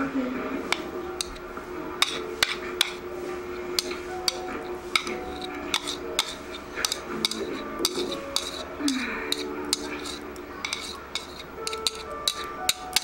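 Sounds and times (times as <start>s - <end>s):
fork clicking against plastic bowl: 9.3s - 13.0s.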